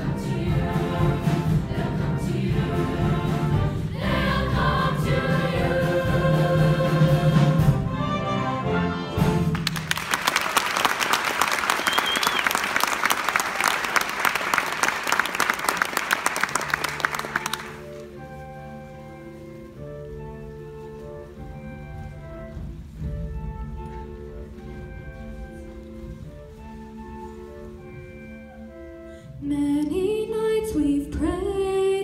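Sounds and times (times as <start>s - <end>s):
choir singing: 0.0s - 8.8s
instrumental accompaniment: 0.0s - 10.3s, 13.0s - 32.0s
audience applause: 9.5s - 18.1s.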